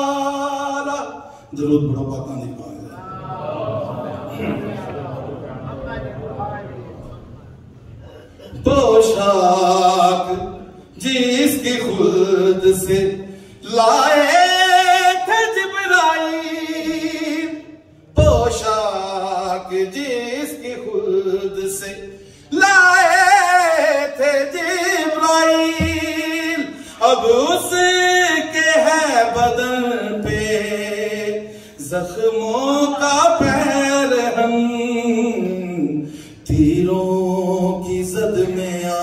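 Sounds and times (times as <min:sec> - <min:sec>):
man singing unaccompanied: 0:00.0 - 0:01.9, 0:08.5 - 0:39.0
short breath: 0:13.3 - 0:13.6, 0:22.2 - 0:22.5, 0:26.7 - 0:27.0, 0:31.5 - 0:31.8, 0:36.0 - 0:36.4.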